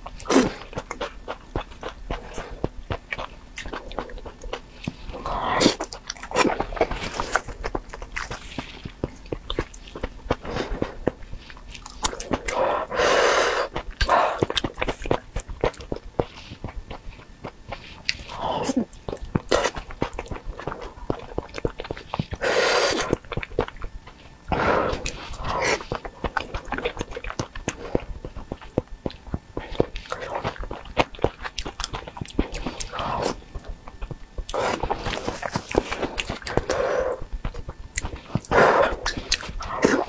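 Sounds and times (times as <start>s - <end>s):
wet chewing and mouth clicks: 0.0s - 40.0s
loud noisy mouth sounds: 38.4s - 40.0s.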